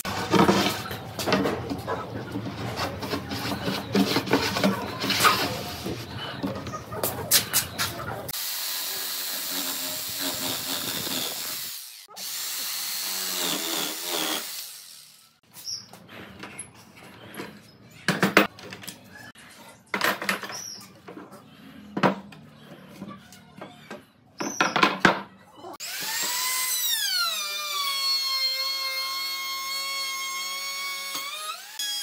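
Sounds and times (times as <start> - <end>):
electric jigsaw sawing wood: 8.3 - 15.3, 25.8 - 32.0.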